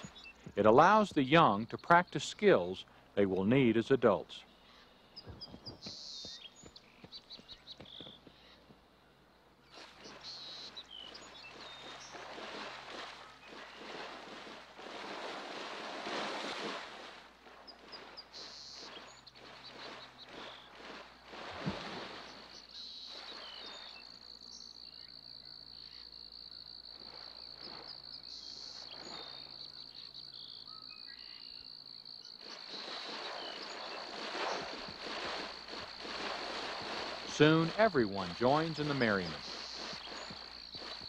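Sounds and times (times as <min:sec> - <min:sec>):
water splashing: 0:00.0 - 0:04.4, 0:09.6 - 0:24.2, 0:32.4 - 0:41.0
high insect trill: 0:22.8 - 0:41.0.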